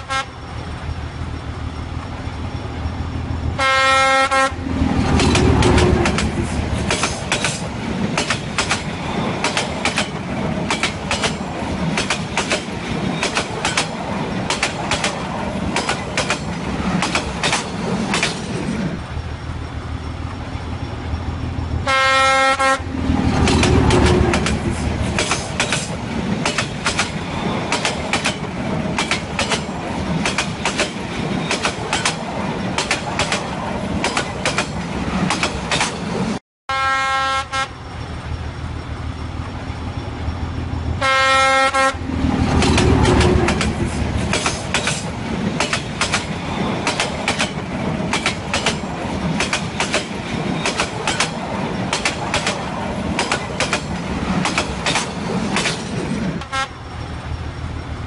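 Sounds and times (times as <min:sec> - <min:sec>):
steam locomotive chuffing: 0:03.1 - 0:19.8, 0:21.2 - 0:36.1
steam locomotive whistle: 0:03.6 - 0:04.5, 0:21.9 - 0:22.8, 0:36.7 - 0:37.7, 0:41.0 - 0:42.0.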